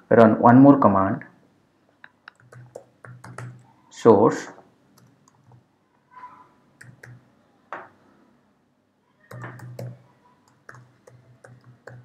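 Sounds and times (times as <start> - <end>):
keyboard typing: 2.2 - 3.8, 4.9 - 5.7, 6.8 - 7.3, 9.3 - 12.0.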